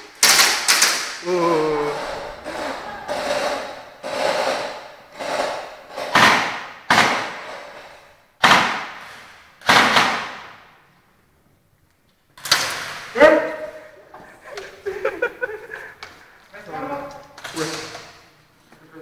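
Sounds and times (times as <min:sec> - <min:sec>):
airsoft gun shots echoing: 0:08.4 - 0:10.7.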